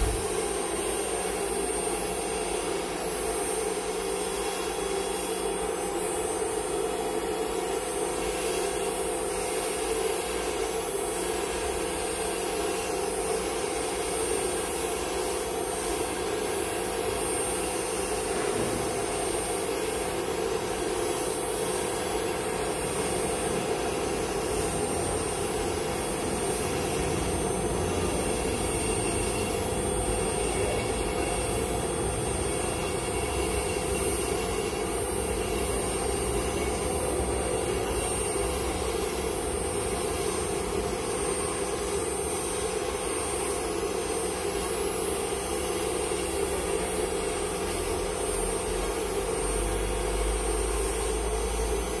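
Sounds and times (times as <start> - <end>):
rushing cutting noise: 0.0 - 1.1
milling spindle high whine: 0.0 - 52.0.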